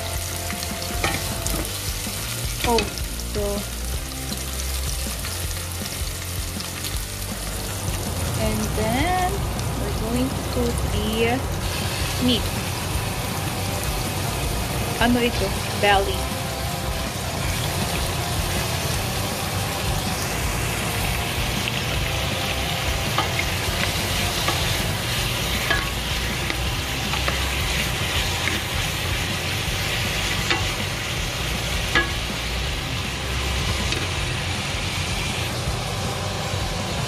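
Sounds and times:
meat sizzling in a pot: 0.0s - 37.0s
steady low rumble: 7.9s - 13.0s.

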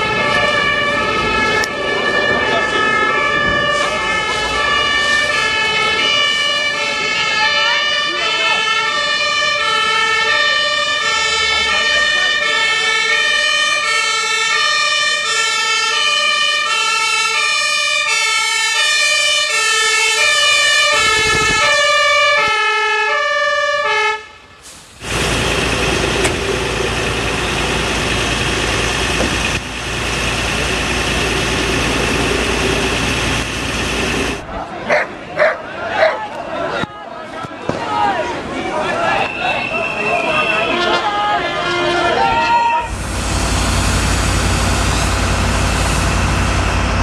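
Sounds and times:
two-tone fire engine siren: 0.0s - 34.4s, 38.9s - 45.8s
fire hose spraying water: 24.6s - 34.4s, 42.9s - 46.7s.

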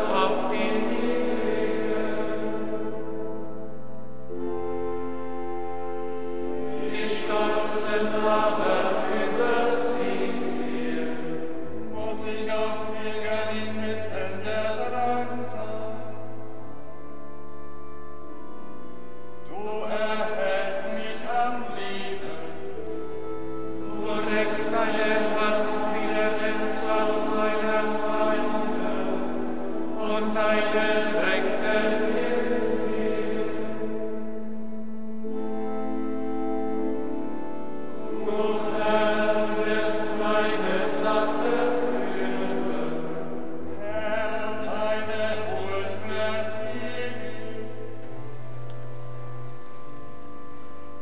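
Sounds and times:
choir singing a chant: 0.0s - 3.2s, 6.5s - 16.3s, 19.5s - 34.5s, 37.9s - 48.3s
organ chords: 0.0s - 51.0s.

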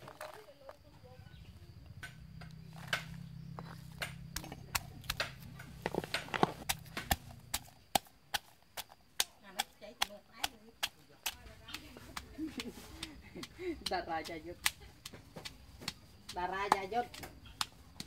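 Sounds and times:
stone pestle pounding in mortar: 3.9s - 17.7s.

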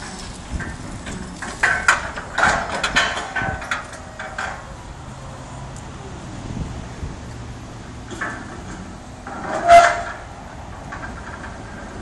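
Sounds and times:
metal parts clanking and rattling: 0.0s - 4.7s, 8.1s - 12.0s
forklift driving: 0.0s - 12.0s.

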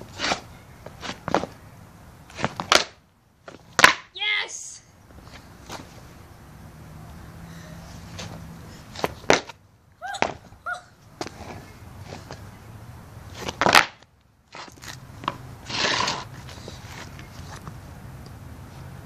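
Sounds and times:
skateboard scraping: 0.0s - 1.6s, 2.3s - 3.9s, 7.9s - 9.6s, 11.2s - 12.5s, 13.3s - 17.8s
skateboard clacking on concrete: 2.3s - 4.0s, 9.0s - 9.6s, 13.4s - 16.6s
skateboard crash: 13.4s - 14.0s.

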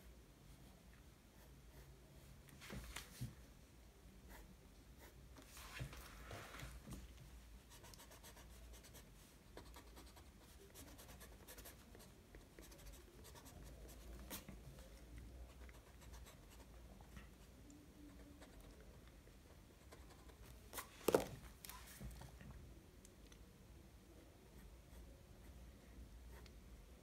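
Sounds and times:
pencil scratching on paper: 4.3s - 5.8s, 7.6s - 14.9s, 15.5s - 18.8s.

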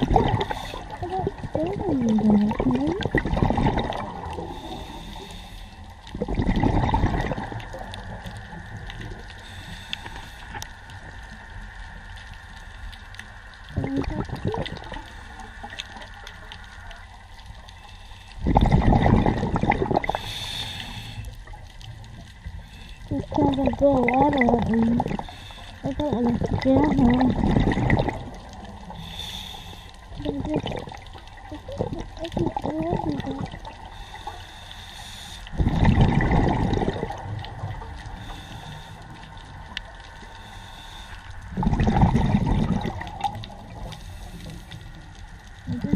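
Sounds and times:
bubbles gurgling: 0.0s - 5.0s, 6.1s - 9.4s, 13.6s - 16.3s, 18.4s - 20.5s, 23.1s - 29.0s, 30.1s - 34.0s, 35.5s - 38.3s, 41.4s - 44.0s, 45.6s - 45.9s
rush of bubbles: 0.0s - 5.2s, 6.1s - 9.4s, 13.7s - 16.4s, 18.4s - 21.6s, 23.1s - 29.2s, 30.1s - 34.3s, 35.5s - 38.4s, 41.5s - 44.2s
regulator breathing underwater: 4.4s - 5.9s, 17.9s - 21.5s, 28.9s - 30.2s, 33.4s - 36.6s, 38.1s - 39.3s, 40.2s - 43.0s.

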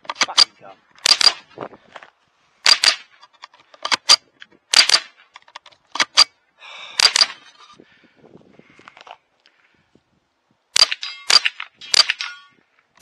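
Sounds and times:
rifle shots cracking: 0.2s - 1.4s, 2.6s - 3.1s, 3.9s - 5.2s, 7.0s - 7.4s, 10.8s - 12.4s.

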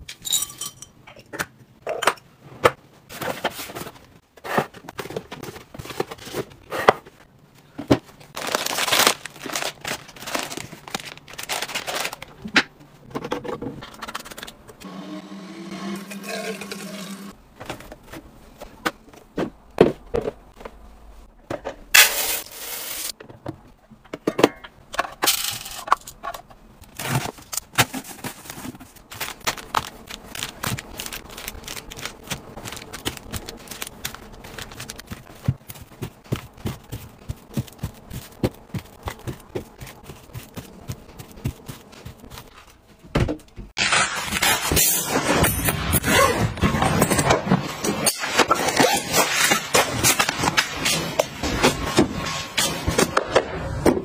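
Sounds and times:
wrappers crinkling: 8.4s - 12.4s, 28.1s - 42.8s.

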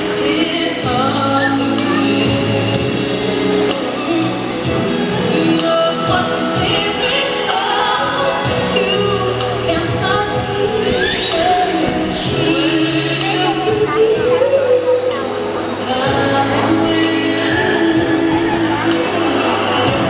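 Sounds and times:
choir-like voices: 0.0s - 20.0s
slow music with singing: 0.0s - 20.0s.

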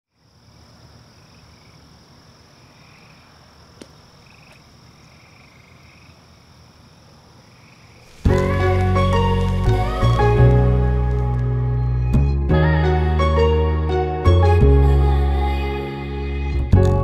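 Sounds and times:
frogs calling: 0.1s - 12.0s
insects calling: 0.1s - 12.0s
loud music: 8.3s - 14.6s.

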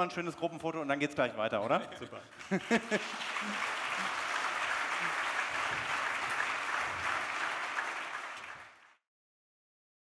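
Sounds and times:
audience applauding: 2.3s - 9.0s.

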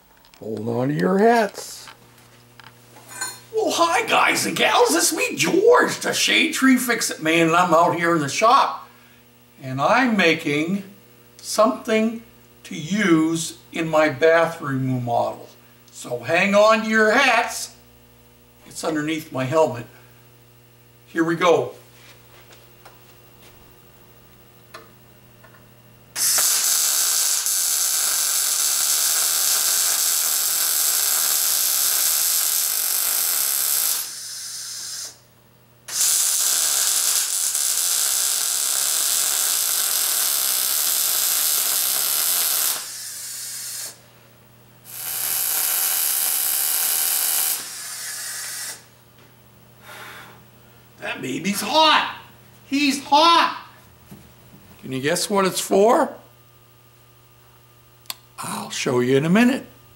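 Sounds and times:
low steady hum: 0.0s - 26.2s
welding arc: 2.6s - 8.9s, 26.1s - 44.1s, 44.8s - 49.0s.

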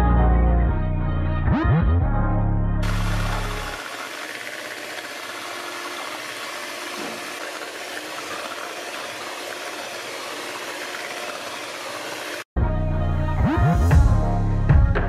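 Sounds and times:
electric hand mixer whisking: 2.8s - 12.5s.

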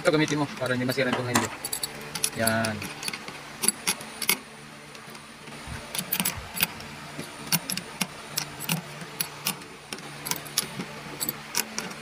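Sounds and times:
wrench clicking on metal: 1.6s - 4.4s, 7.5s - 12.0s.

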